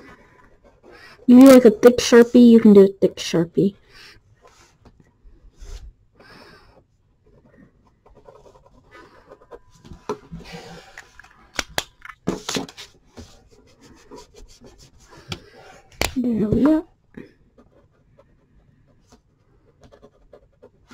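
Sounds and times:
marker scratching on paper: 0:00.6 - 0:02.8, 0:08.0 - 0:09.5, 0:17.6 - 0:20.9.

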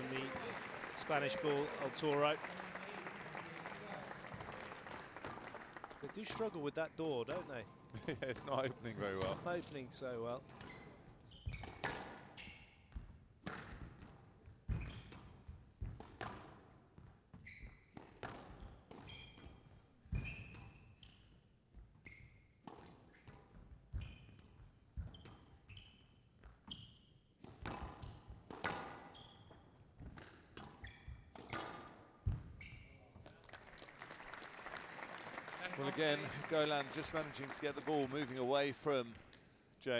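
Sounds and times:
shoes squeaking on court floor: 0:10.3 - 0:16.0, 0:17.0 - 0:33.4
squash ball hitting rackets and walls: 0:11.5 - 0:12.4, 0:13.0 - 0:20.8, 0:27.3 - 0:32.6.

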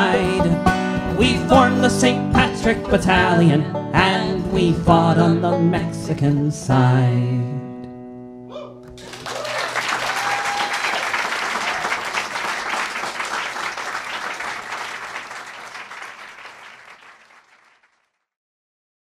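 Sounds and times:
audience applauding: 0:08.9 - 0:18.2.

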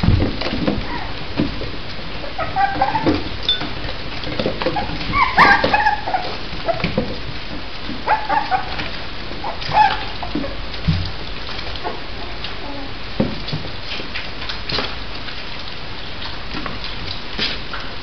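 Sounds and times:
paws scrabbling against box: 0:00.0 - 0:12.1
puppies whimpering and yipping: 0:00.8 - 0:01.2, 0:02.2 - 0:03.7, 0:04.6 - 0:07.0, 0:08.0 - 0:10.7.

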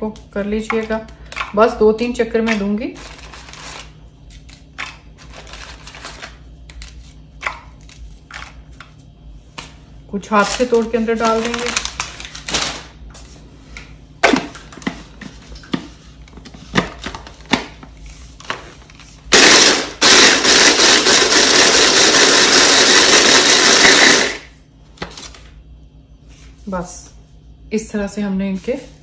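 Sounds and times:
cookies snapping: 0:10.5 - 0:12.9
electric chopper running: 0:19.3 - 0:24.5.

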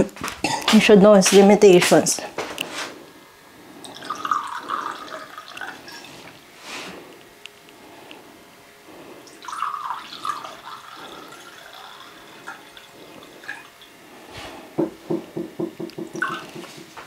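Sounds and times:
wine pouring into a glass: 0:03.8 - 0:06.3, 0:09.2 - 0:13.9.

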